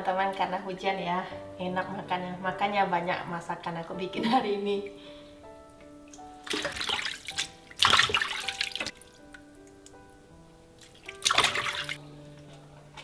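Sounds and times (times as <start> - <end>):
background music: 0.0 - 13.0
tap water splashing in sink: 6.1 - 10.0, 10.8 - 12.0.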